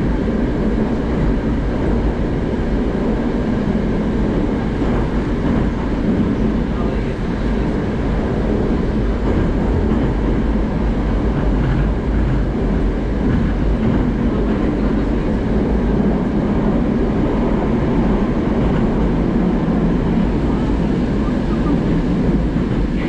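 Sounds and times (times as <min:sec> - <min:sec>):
train rumbling through tunnel: 0:00.0 - 0:23.0.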